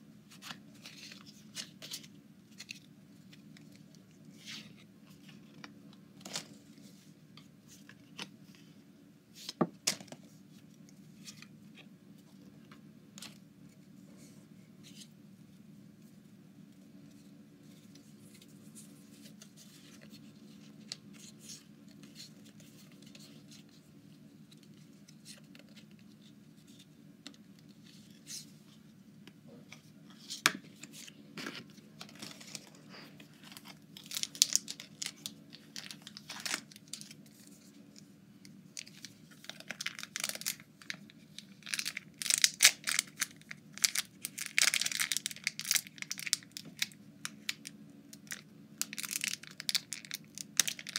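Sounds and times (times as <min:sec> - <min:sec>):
low steady hum: 0:00.0 - 0:50.9
foil wrapper crinkling and tearing: 0:33.4 - 0:37.2, 0:38.8 - 0:50.9.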